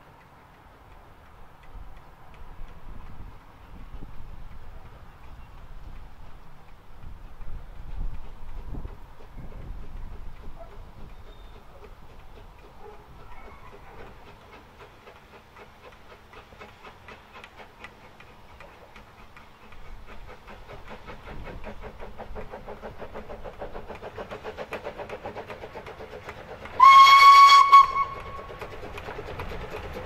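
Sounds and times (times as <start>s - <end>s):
steam locomotive chuffing: 0.0s - 30.0s
steam whistle blast: 26.8s - 28.5s.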